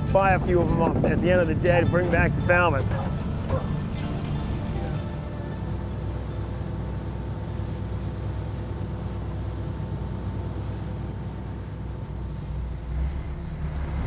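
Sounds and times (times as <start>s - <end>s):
boat engine rumbling: 0.0s - 14.0s.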